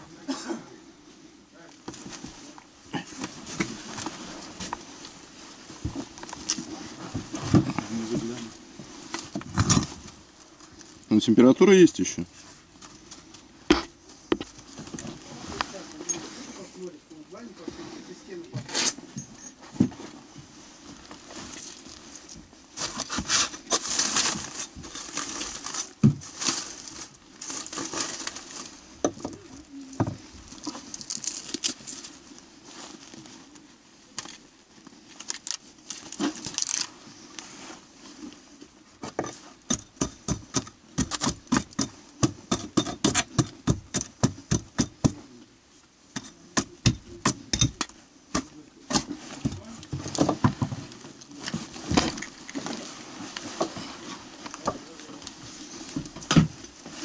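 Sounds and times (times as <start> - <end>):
foil rustling and crinkling: 20.2 - 39.7.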